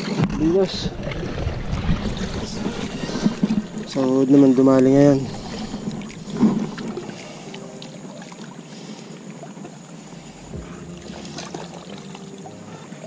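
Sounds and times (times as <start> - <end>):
wind on microphone: 0.0 - 7.1.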